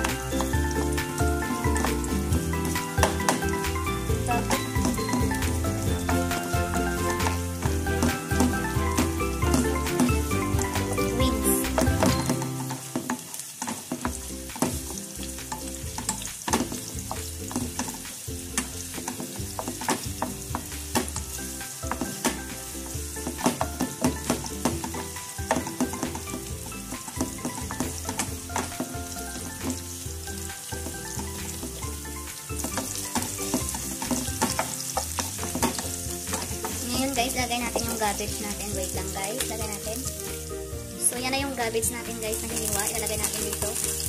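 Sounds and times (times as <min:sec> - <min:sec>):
onions sizzling in hot oil: 0:00.0 - 0:44.0
wooden spatula scraping a pan: 0:04.4 - 0:10.7, 0:11.7 - 0:29.8, 0:30.8 - 0:40.4.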